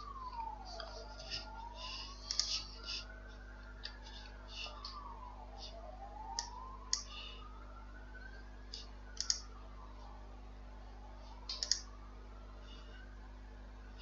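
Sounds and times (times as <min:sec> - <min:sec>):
computer mouse clicks: 0:02.3 - 0:02.6, 0:08.7 - 0:09.5, 0:11.5 - 0:11.9.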